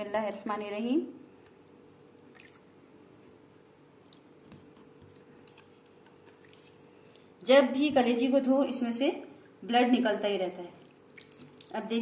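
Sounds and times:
wet squishes of liver: 0:04.0 - 0:07.4, 0:10.8 - 0:11.8.

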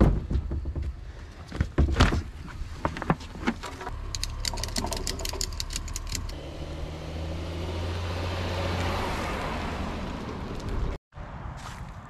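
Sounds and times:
car engine hum and tyre noise: 0:00.2 - 0:12.0
ratchet strap clicking: 0:04.1 - 0:06.4.

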